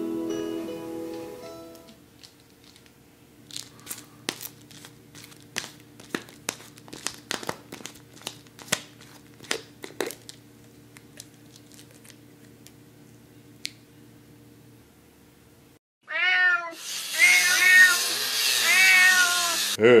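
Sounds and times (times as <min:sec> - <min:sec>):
plastic bottle cap crinkling: 0:02.2 - 0:12.8.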